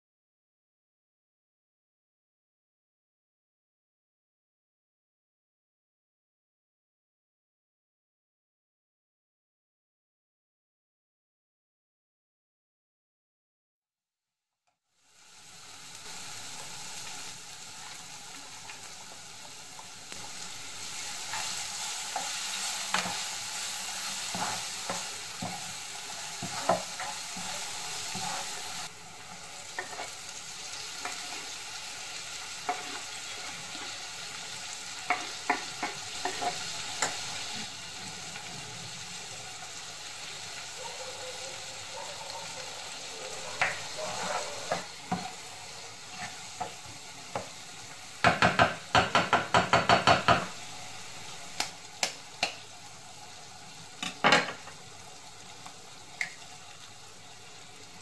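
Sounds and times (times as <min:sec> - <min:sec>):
vegetables sizzling in pan: 0:14.9 - 0:58.0
spatula tapping pan: 0:29.7 - 0:30.1, 0:35.0 - 0:37.2, 0:48.2 - 0:50.6.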